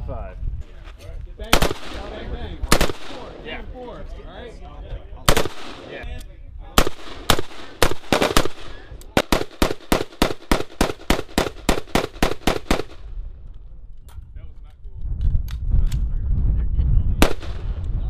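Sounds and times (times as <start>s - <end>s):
rifle gunshots: 1.5s - 3.5s, 5.3s - 6.0s, 6.8s - 13.1s, 17.2s - 17.7s.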